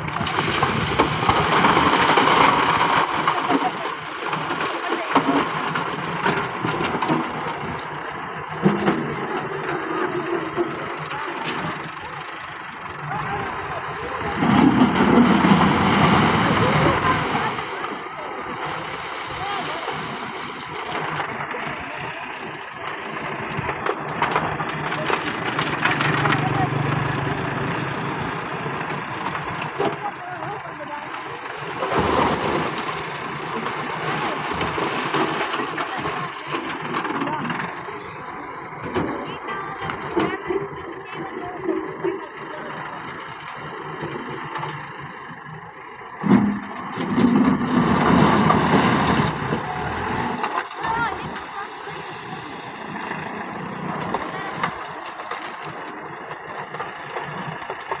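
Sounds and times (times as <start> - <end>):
stones knocking in loader bucket: 0.0 - 10.9, 46.2 - 58.0
tractor diesel engine running: 0.0 - 58.0.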